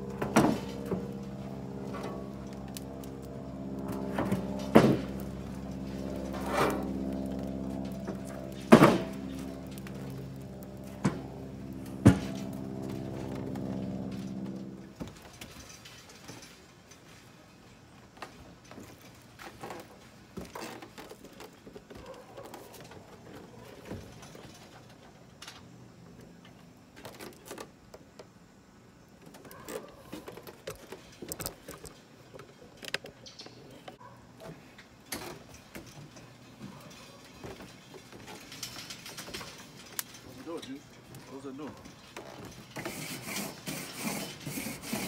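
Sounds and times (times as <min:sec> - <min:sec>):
grill lid opening: 0:00.0 - 0:14.5
charcoal grill clicks and rattles: 0:00.0 - 0:17.0, 0:29.1 - 0:45.0.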